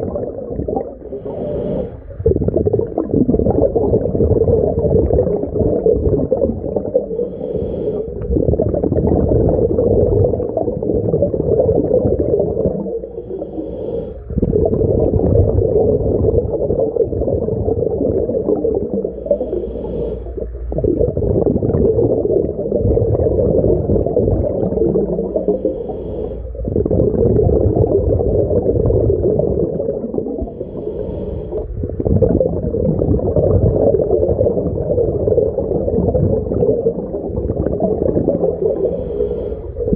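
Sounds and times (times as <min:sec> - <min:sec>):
underwater exhale bubbling: 0:00.0 - 0:39.9
regulator inhale hiss: 0:01.0 - 0:02.3, 0:07.1 - 0:08.3, 0:13.0 - 0:14.4, 0:19.0 - 0:20.7, 0:25.2 - 0:26.6, 0:30.4 - 0:31.8, 0:38.6 - 0:39.9.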